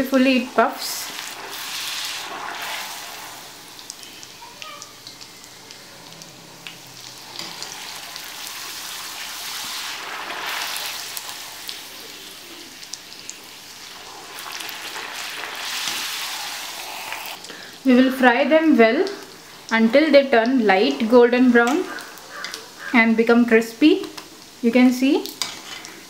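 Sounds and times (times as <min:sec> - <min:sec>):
dough deep-frying in oil: 0:00.0 - 0:26.0.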